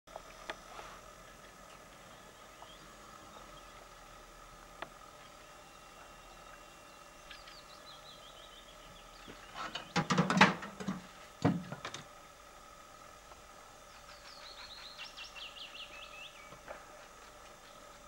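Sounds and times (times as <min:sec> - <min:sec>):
faint bird chirps: 0:13.8 - 0:16.6.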